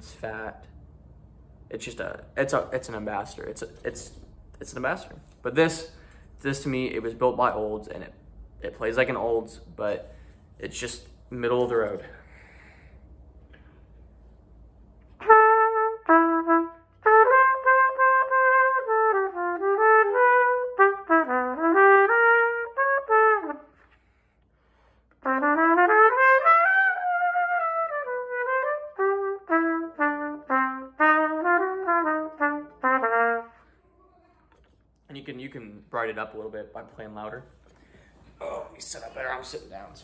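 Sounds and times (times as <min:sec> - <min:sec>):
solo trumpet melody: 0:15.1 - 0:24.0, 0:25.2 - 0:33.8.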